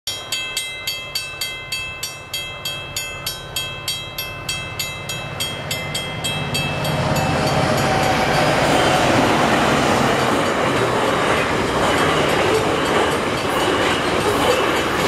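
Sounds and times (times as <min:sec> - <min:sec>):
level crossing bell ringing: 0:00.1 - 0:09.2
freight train rumble: 0:01.8 - 0:15.0.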